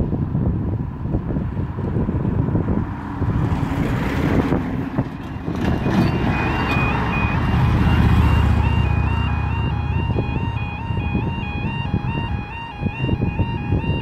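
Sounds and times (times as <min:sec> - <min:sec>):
motorcycle driving past: 0:02.7 - 0:11.0
lorry driving past: 0:02.7 - 0:12.6
two-tone level crossing alarm: 0:05.3 - 0:14.0.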